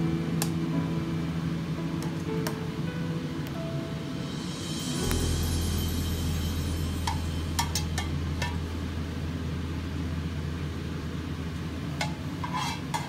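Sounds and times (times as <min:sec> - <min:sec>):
low hum: 0:03.6 - 0:11.9
metal spatula scraping a wok: 0:12.4 - 0:13.0.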